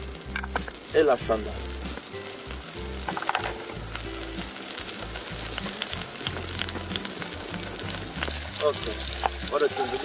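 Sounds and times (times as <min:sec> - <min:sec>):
oil sizzling and crackling: 0:00.0 - 0:10.0.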